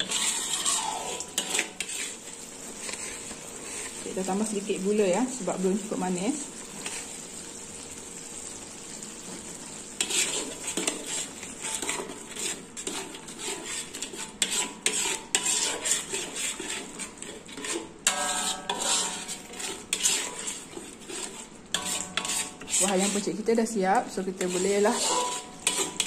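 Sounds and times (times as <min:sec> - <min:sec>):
metal spatula scraping wok: 0:00.0 - 0:07.4, 0:09.4 - 0:26.0
sauce sizzling: 0:00.0 - 0:26.0.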